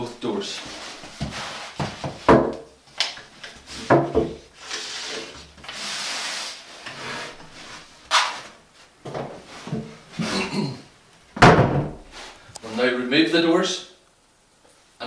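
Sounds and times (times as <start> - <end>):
sharp scrape: 1.3 - 1.8, 4.6 - 8.5
wooden plank knocking and rubbing: 3.8 - 4.4.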